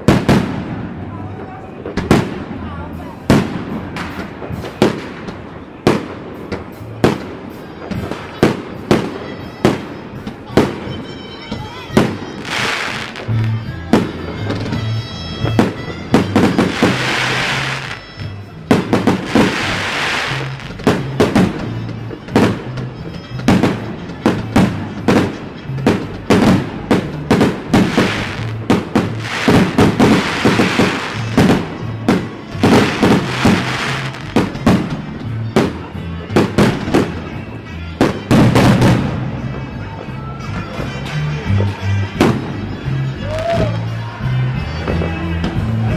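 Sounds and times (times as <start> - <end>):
fireworks bangs and crackles: 0.0 - 43.8
music with steady bass line: 12.0 - 45.9
fireworks hissing: 12.4 - 13.4, 16.3 - 18.0, 18.8 - 21.2, 27.8 - 31.7, 32.5 - 34.4.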